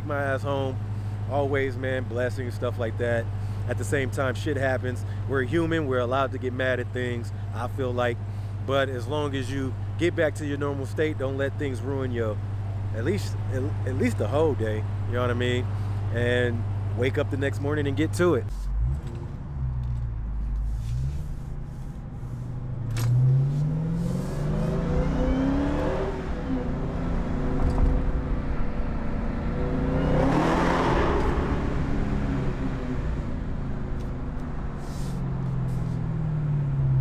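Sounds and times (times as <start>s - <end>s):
car engine accelerating: 12.5s - 37.0s.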